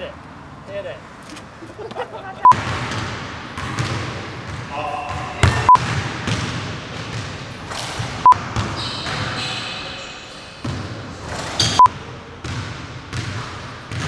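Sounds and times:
basketball bouncing on wooden floor: 2.6s - 9.2s, 12.4s - 14.0s
shoe squeaks: 8.7s - 10.7s, 11.3s - 11.9s.

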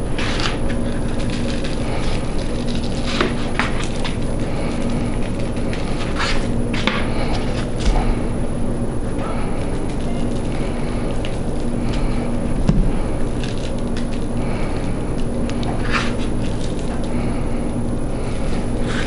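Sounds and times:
background hum and rumble: 0.0s - 19.0s.

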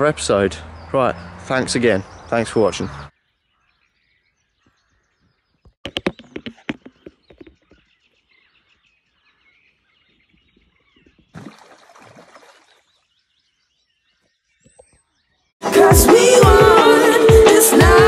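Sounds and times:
faint bird chirping: 0.0s - 15.6s
sharp knocks and clatters: 5.7s - 7.8s.

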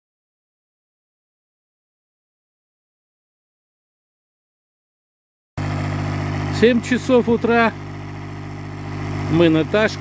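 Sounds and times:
electric air pump running: 5.6s - 10.0s.

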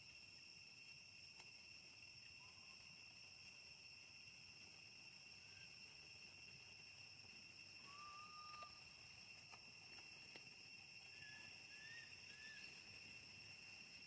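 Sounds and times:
crickets droning: 0.0s - 14.0s
thin whistled call: 7.8s - 8.8s, 11.1s - 12.9s.

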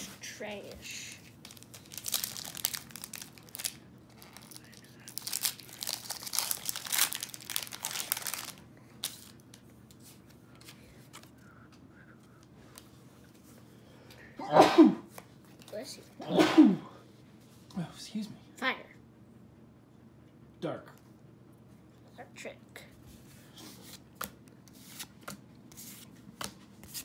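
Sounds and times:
foil wrapper crinkling and tearing: 1.3s - 9.6s
person sneezing: 14.3s - 15.1s, 16.2s - 17.0s.

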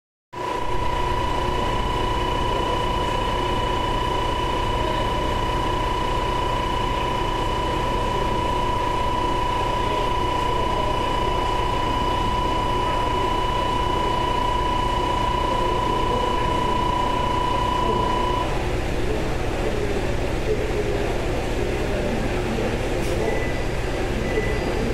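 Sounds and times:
high-pitched tone: 0.4s - 18.6s
diesel railcar engine idling: 0.5s - 24.9s.

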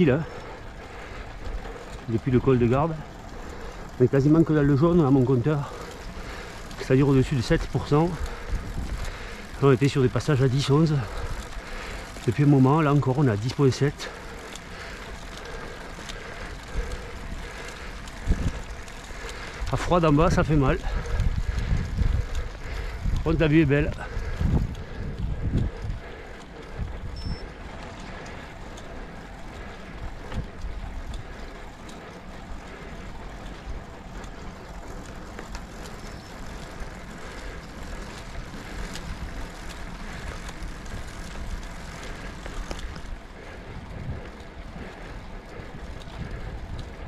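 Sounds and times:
bicycle tyre rolling noise: 0.0s - 47.0s
wind rumble on microphone: 7.6s - 10.2s, 16.5s - 28.2s, 32.4s - 47.0s.

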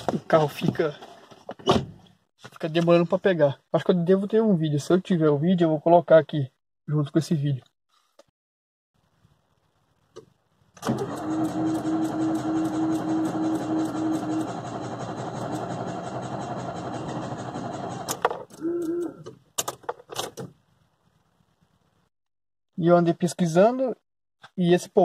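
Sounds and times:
starter motor cranking engine: 10.8s - 18.4s.

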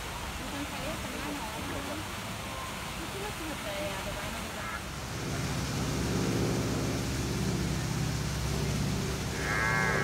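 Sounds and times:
low engine hum: 4.8s - 10.0s.

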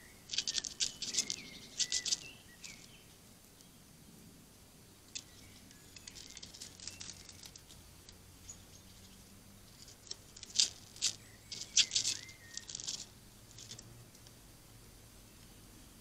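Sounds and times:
squirrel scratching on wood: 0.3s - 3.2s, 5.1s - 14.4s.

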